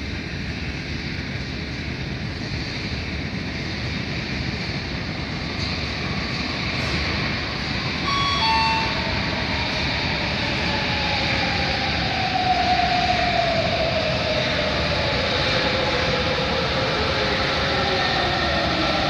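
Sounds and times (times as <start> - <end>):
train rumble with motor whine: 0.0 - 19.0
two-note tone: 8.0 - 9.0.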